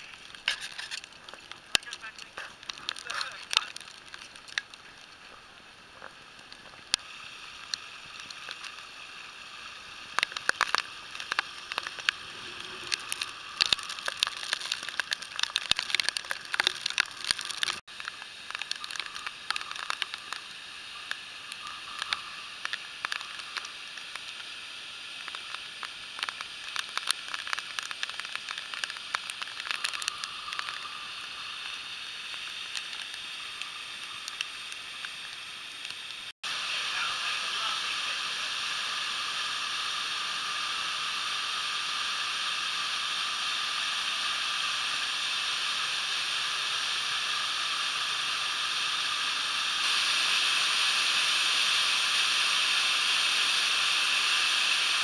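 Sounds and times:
crackles on microphone: 0:00.0 - 0:07.0, 0:10.1 - 0:24.5, 0:25.2 - 0:36.1
floodwater rushing: 0:00.0 - 0:39.6.

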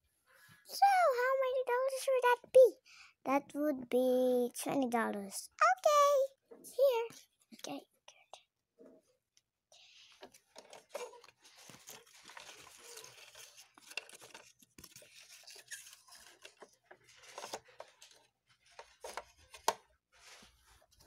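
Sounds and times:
rustling: 0:10.1 - 0:21.0
plastic toy clicks and clacks: 0:10.2 - 0:19.9.

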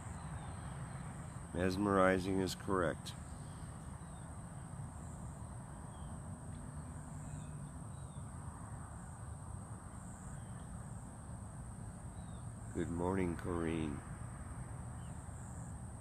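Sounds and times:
faint bird chirps: 0:03.2 - 0:08.4, 0:09.9 - 0:11.0, 0:12.1 - 0:13.0, 0:15.0 - 0:15.7.

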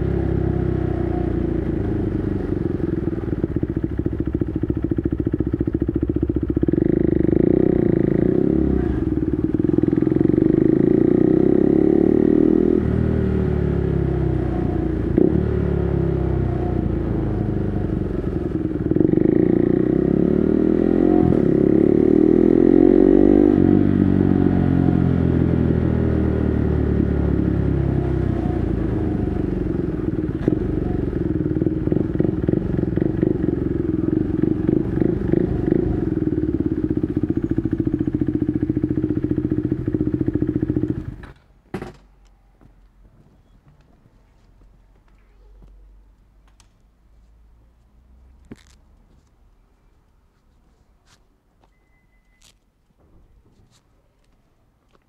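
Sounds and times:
motorcycle engine revving: 0:00.0 - 0:41.4.

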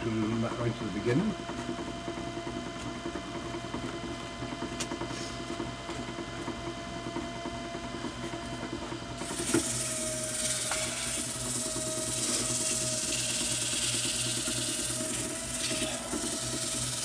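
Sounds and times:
wood lathe running: 0:08.8 - 0:17.0.

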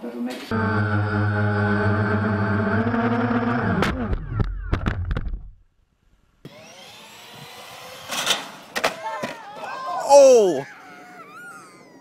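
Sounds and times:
drone motors whining: 0:00.5 - 0:05.1, 0:06.4 - 0:08.8.

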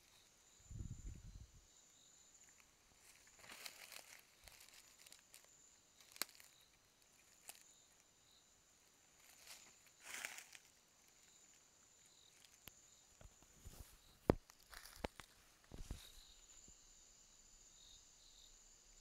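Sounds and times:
faint high whine: 0:00.0 - 0:15.0
rustling in dry leaves: 0:02.4 - 0:07.7, 0:09.0 - 0:11.6, 0:13.6 - 0:16.3.

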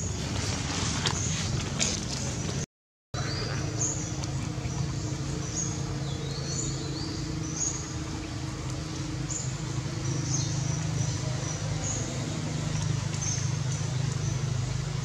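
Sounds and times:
steady low hum: 0:03.2 - 0:15.0.

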